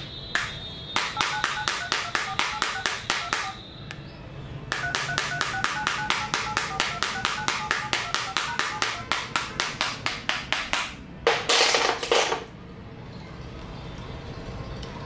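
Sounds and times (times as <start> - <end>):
phone keypad tones beeping: 1.1 - 3.6, 4.8 - 9.1.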